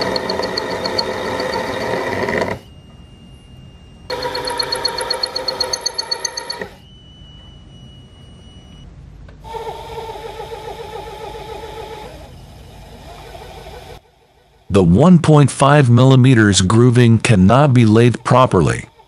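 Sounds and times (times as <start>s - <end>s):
lathe high whine: 0.0s - 8.8s.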